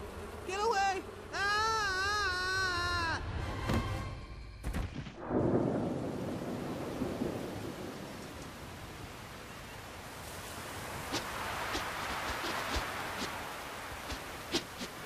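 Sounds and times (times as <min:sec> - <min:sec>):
wind: 0:00.0 - 0:15.0
rain: 0:05.1 - 0:15.0.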